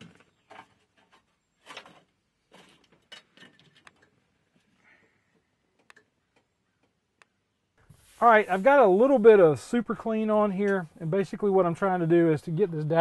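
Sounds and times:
faint clicks and rubs of small parts: 0.5 - 8.6.

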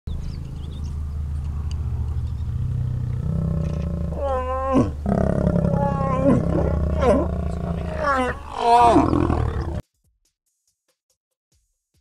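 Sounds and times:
lions growling: 2.4 - 9.8.

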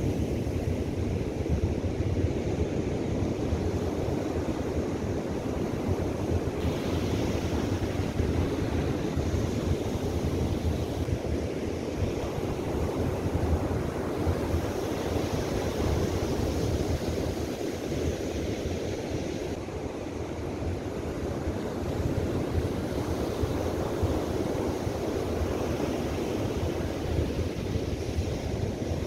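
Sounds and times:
wind rumbling on microphone: 0.0 - 29.0.

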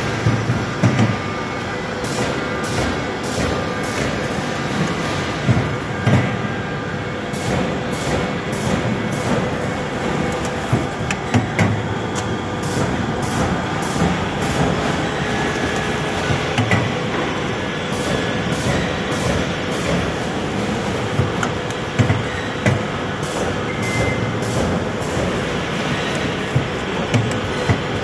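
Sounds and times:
machine mechanical clatter: 7.4 - 28.0.

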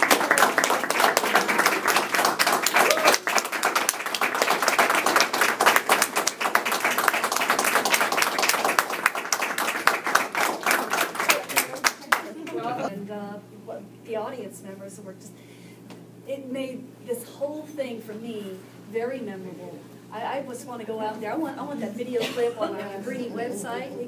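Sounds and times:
audience applauding: 0.0 - 12.8.

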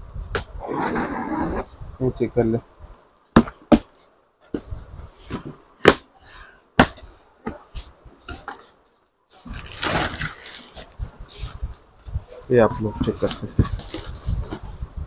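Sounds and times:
cardboard sliding and scraping: 9.3 - 11.7
plastic wrapping rustling: 9.3 - 11.8, 13.0 - 14.9.

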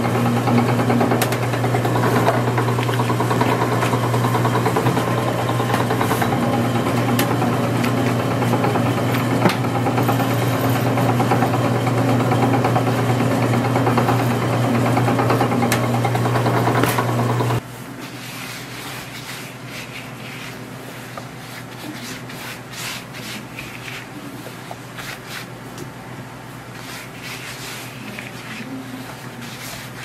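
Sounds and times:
dough sheeter motor humming: 0.0 - 25.6.

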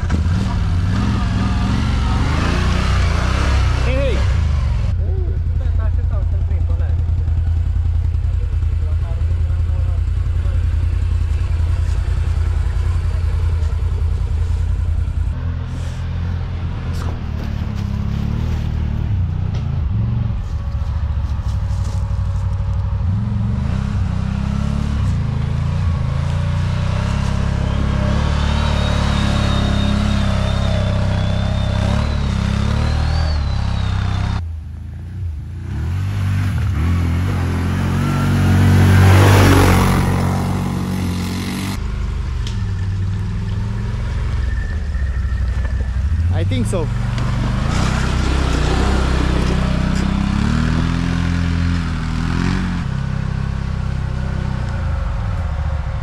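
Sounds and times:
atv engine revving: 0.0 - 34.4, 35.0 - 56.0.

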